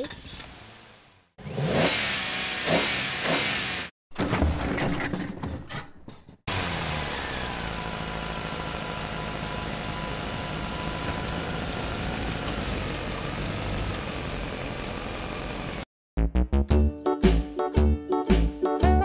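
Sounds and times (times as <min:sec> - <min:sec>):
big engine idling: 0:06.6 - 0:15.8.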